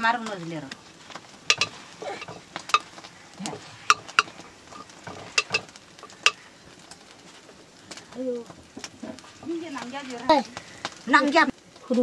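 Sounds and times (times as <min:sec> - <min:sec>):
metal ladle clinking in pot: 0:01.5 - 0:02.9, 0:03.8 - 0:06.4.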